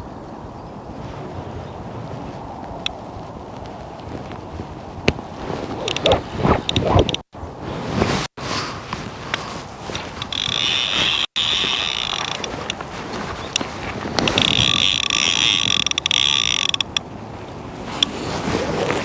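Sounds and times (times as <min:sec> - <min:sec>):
fishing reel drag ticking: 0:10.2 - 0:12.6, 0:14.2 - 0:17.0.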